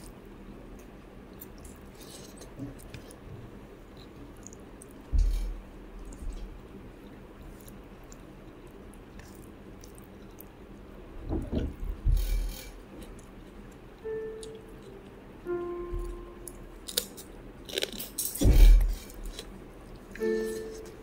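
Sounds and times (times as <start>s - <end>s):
wet chewing: 3.9s - 10.6s, 16.8s - 20.9s.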